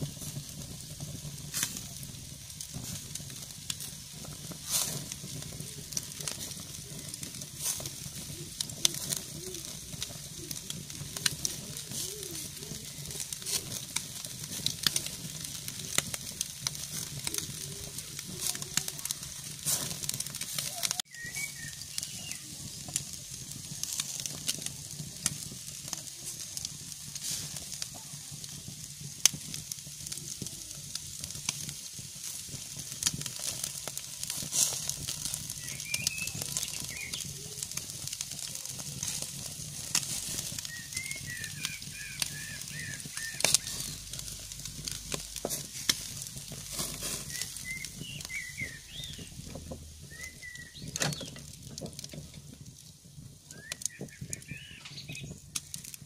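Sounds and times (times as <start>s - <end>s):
meat sizzling on grill: 0.0s - 56.0s
sharp pops and crackles: 0.0s - 56.0s
small birds chirping: 3.8s - 24.4s, 34.8s - 52.1s, 53.4s - 56.0s.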